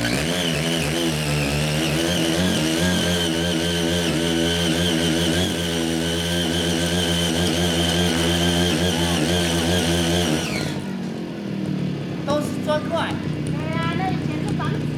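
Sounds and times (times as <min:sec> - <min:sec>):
small engine running under load: 0:00.0 - 0:14.9.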